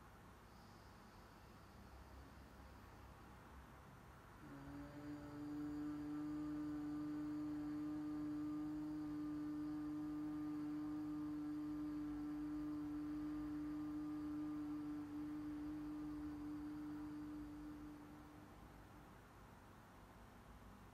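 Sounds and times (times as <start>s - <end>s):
woman humming low note: 4.4s - 18.8s.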